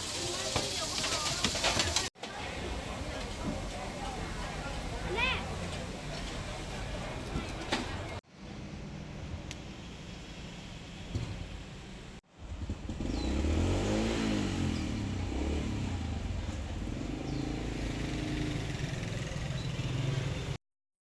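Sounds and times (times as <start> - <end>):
vehicle engine passing by: 12.3 - 20.6.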